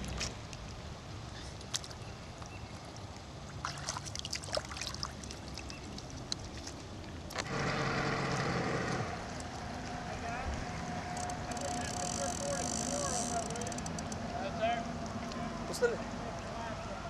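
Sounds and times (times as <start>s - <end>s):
shallow water splashing: 0.0s - 7.8s.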